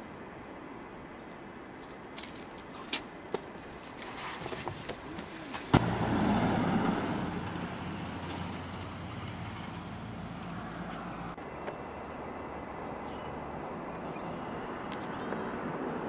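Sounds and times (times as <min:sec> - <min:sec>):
vehicle engine rumbling: 0:05.0 - 0:16.0.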